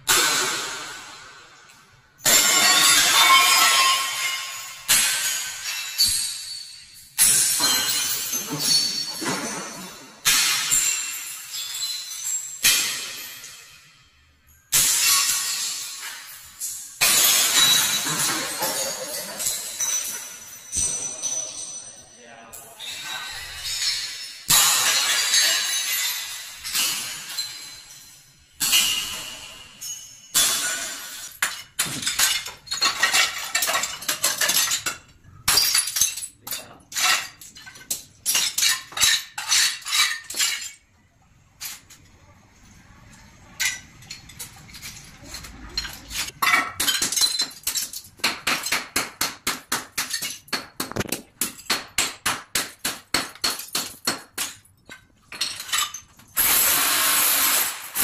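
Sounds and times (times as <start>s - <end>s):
shards clinking on tiled floor: 0.0s - 41.0s, 43.4s - 58.0s
hammer cracking porcelain: 2.2s - 6.3s, 7.2s - 13.6s, 17.0s - 21.1s, 30.3s - 40.8s, 45.8s - 58.0s.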